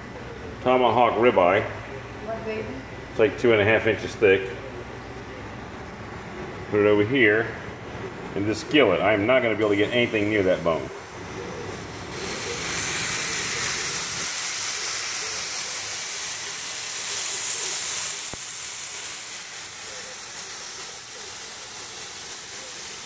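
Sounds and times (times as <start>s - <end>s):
steak sizzling in a skillet: 11.0s - 23.0s.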